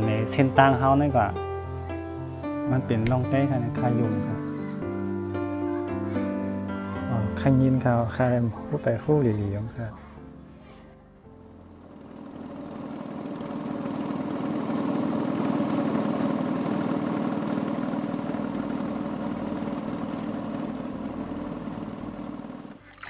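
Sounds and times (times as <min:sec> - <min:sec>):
engine running steadily: 0:11.5 - 0:23.0.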